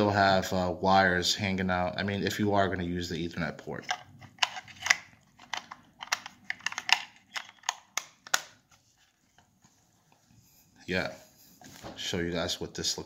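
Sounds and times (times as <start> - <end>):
hard plastic clicks and taps: 3.9 - 8.6.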